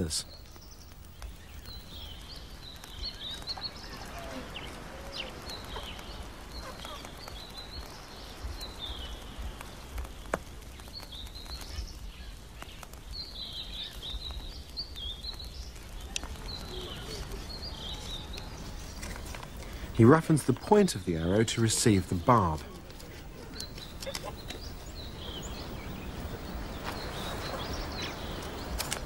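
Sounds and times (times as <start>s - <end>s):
small birds chirping: 0.0s - 29.0s
faint clicks: 13.8s - 19.9s, 26.8s - 29.0s.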